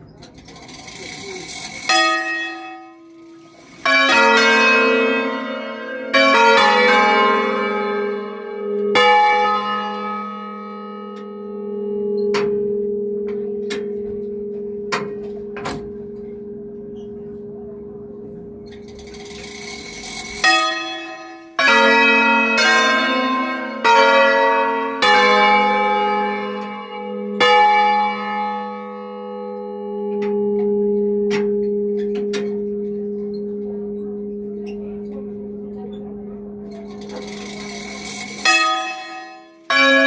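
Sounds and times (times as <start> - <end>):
church bells striking: 0.0 - 40.0
bell hum: 0.6 - 40.0
knocks from bell fittings: 13.6 - 16.3.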